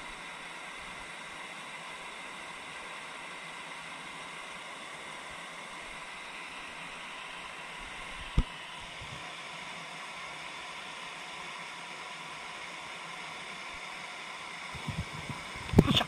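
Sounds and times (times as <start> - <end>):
water rushing over weir: 14.8 - 16.0.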